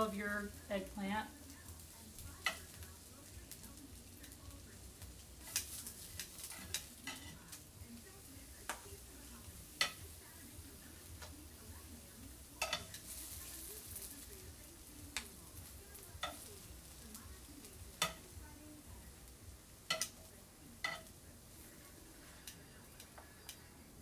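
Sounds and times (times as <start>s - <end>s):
faint frying sizzle: 0.0s - 24.0s
metal tongs clicking against pan: 2.1s - 2.9s, 5.1s - 7.6s, 8.6s - 10.2s, 11.1s - 11.4s, 12.6s - 14.2s, 14.8s - 18.3s, 19.8s - 21.2s.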